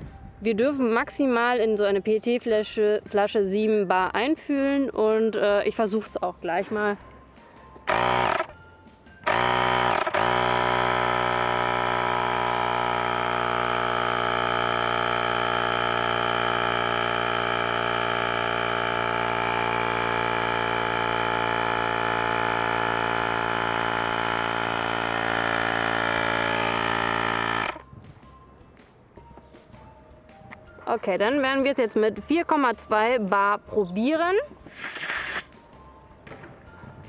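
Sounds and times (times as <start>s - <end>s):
electric air compressor pumping: 7.8s - 8.5s, 9.2s - 27.9s, 34.7s - 35.5s.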